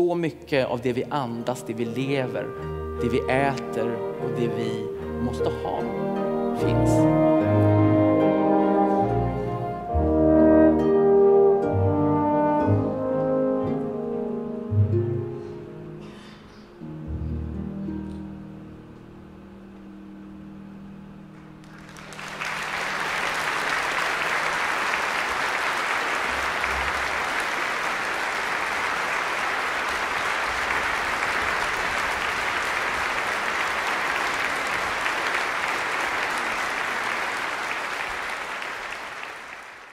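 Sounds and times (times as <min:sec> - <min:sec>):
orchestra playing: 0:00.5 - 0:38.6
audience applauding: 0:21.4 - 0:39.9.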